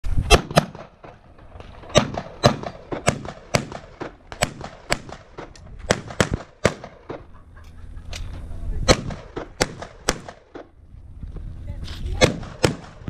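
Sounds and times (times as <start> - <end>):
handgun shots: 12.2 - 13.0.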